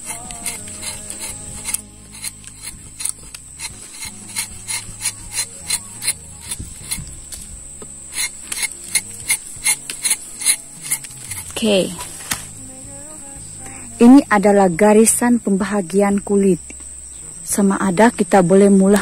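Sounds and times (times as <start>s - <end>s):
knife scraping tree bark: 0.0s - 12.5s.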